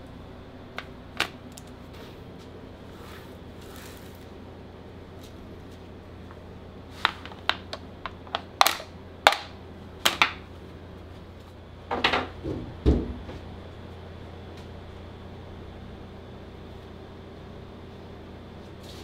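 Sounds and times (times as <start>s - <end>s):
steady low hum: 0.0s - 19.0s
dull heavy knock: 12.4s - 13.4s.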